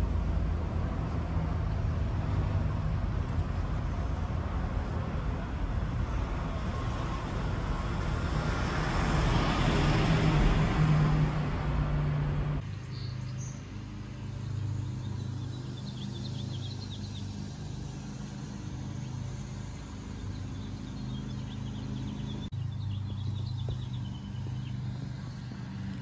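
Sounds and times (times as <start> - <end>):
passing road traffic: 0.0 - 26.0
small birds chirping: 12.6 - 26.0.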